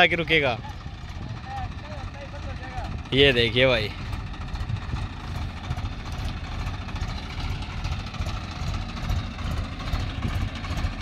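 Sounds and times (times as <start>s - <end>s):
tractor diesel engines idling: 0.0s - 11.0s.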